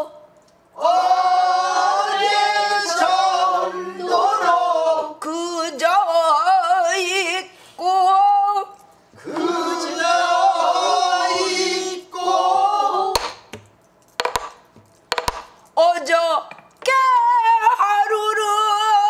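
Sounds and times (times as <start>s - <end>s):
voices singing a response: 0.8s - 5.5s, 9.2s - 13.4s
woman singing with vibrato: 4.2s - 8.8s, 15.8s - 19.0s.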